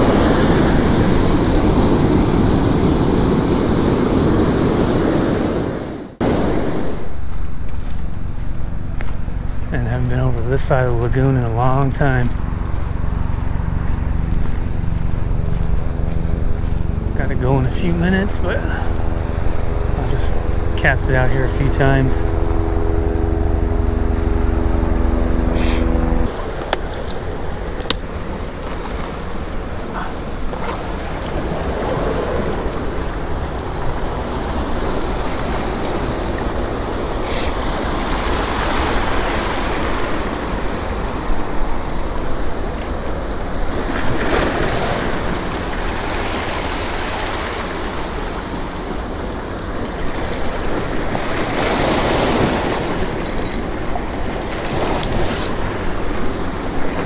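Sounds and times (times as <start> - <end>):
low steady pitched hum: 6.2 - 38.6.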